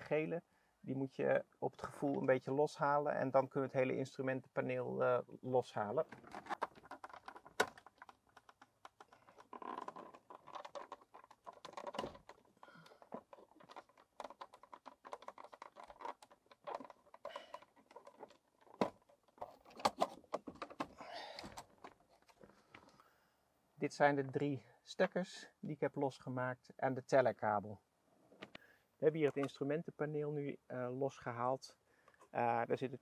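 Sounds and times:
plastic and wiring rustling: 6.0s - 23.0s.

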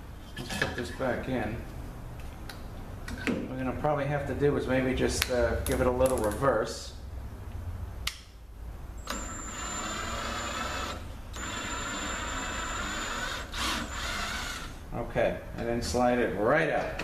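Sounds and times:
cordless drill whining: 9.0s - 14.8s.

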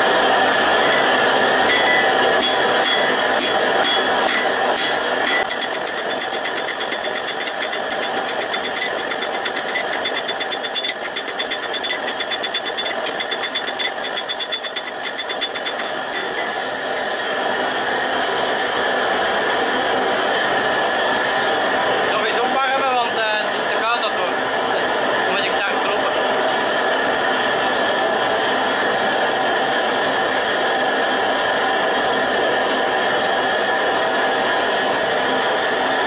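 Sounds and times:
forge rushing noise: 0.0s - 20.6s
hammer striking steel on anvil: 0.5s - 16.6s.

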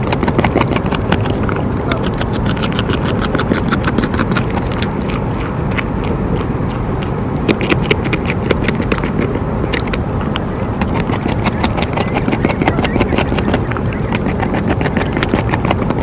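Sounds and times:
beaver gnawing bark: 0.0s - 16.0s
low rumble: 0.0s - 16.0s.

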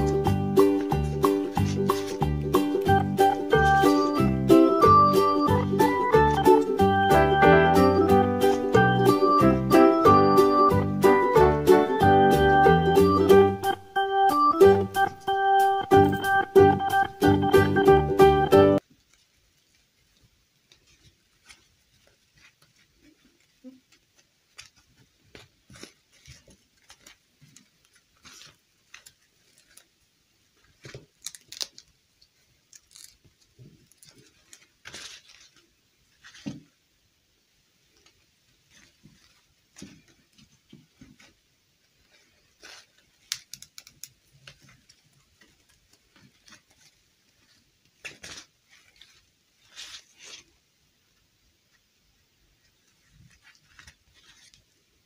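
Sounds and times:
fabric dress rustling: 0.0s - 7.0s, 18.8s - 31.6s, 32.7s - 36.8s, 37.8s - 50.7s, 52.6s - 55.0s.

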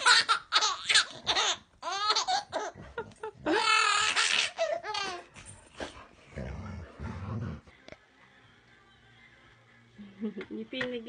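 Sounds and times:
baby laughing: 0.0s - 5.3s.

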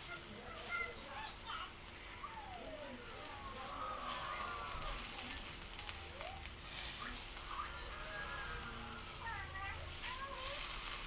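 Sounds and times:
charcoal crackling: 0.0s - 11.0s
meat sizzling on a grill: 0.0s - 11.0s.

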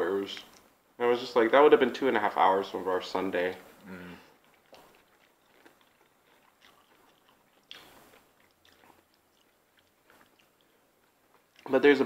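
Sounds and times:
chewing and mouth sounds: 3.7s - 11.8s.

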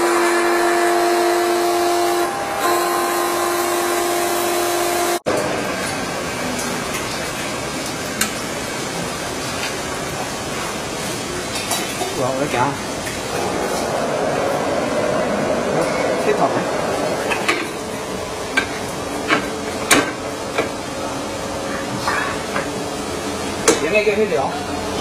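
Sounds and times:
polishing machine motors humming: 0.0s - 5.2s, 12.4s - 25.0s
noisy machine running: 0.0s - 11.6s, 12.2s - 25.0s.

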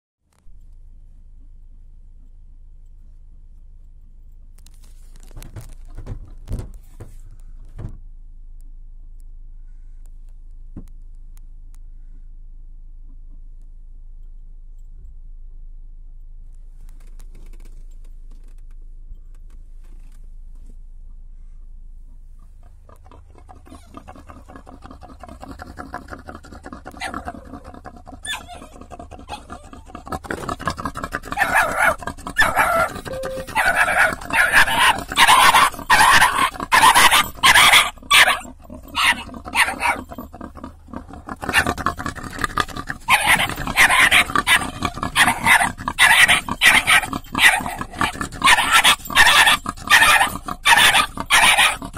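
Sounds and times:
dog barking loudly: 27.0s - 27.4s, 28.2s - 29.6s, 31.2s - 40.2s, 41.5s - 41.8s, 43.0s - 51.9s.

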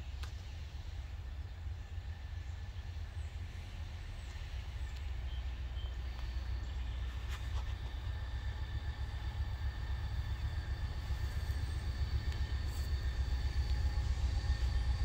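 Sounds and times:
steady low rumble: 0.0s - 15.0s
faint bird chirps: 4.2s - 8.0s.

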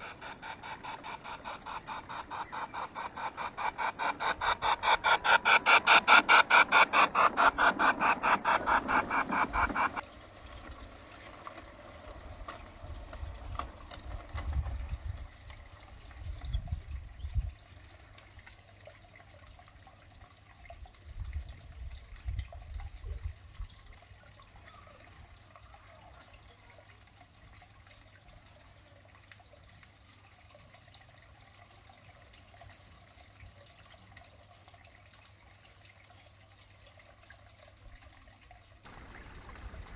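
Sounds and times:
model train clattering: 0.0s - 10.0s.

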